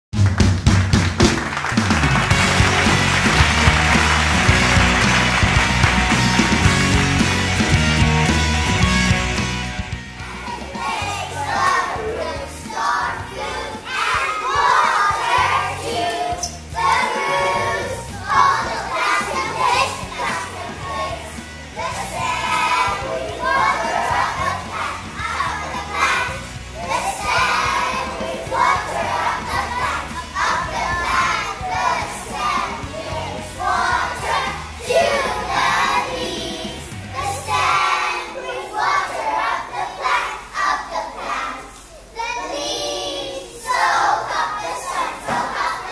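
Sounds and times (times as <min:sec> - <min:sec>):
recorded music backing track: 0:00.2 - 0:39.8
children singing together: 0:10.2 - 0:45.9.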